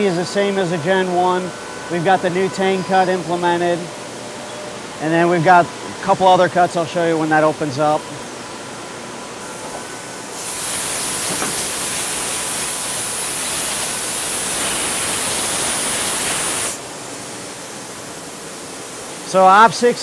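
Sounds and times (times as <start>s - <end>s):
machine shop hum: 0.0s - 20.0s
air blow gun hissing: 9.4s - 19.9s.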